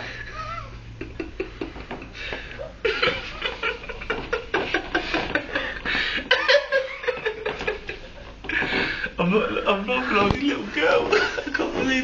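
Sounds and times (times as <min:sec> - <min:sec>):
breathy stifled laughter: 0:00.1 - 0:09.2.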